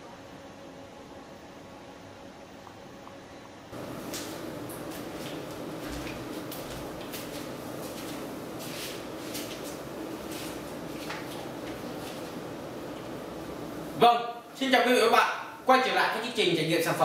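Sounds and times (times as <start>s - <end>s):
steady room hum: 0.0s - 17.0s.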